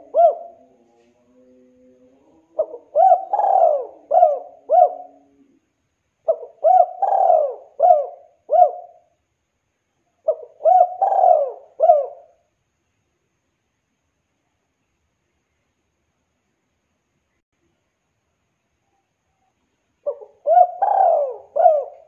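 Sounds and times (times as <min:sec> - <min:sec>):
dove cooing: 0:00.0 - 0:01.0, 0:02.0 - 0:05.6, 0:06.2 - 0:09.1, 0:10.2 - 0:12.4, 0:20.0 - 0:22.0.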